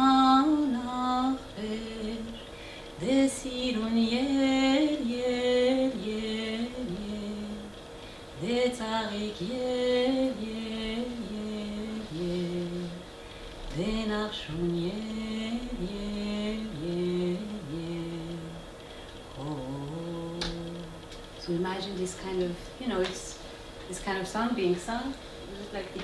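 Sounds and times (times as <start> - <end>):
woman singing unaccompanied: 0.0 - 26.0.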